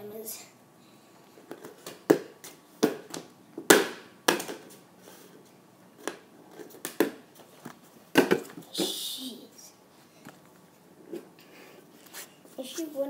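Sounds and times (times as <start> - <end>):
plastic ball bouncing on hard floor: 1.5 - 4.8, 6.8 - 7.2, 8.1 - 8.9.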